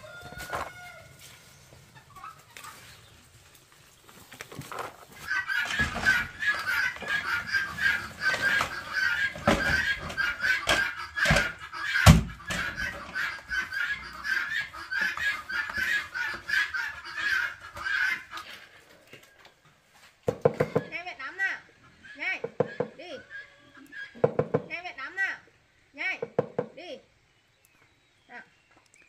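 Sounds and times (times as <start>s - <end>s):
chickens clucking: 0.0s - 26.8s
sharp knocks: 24.2s - 24.7s.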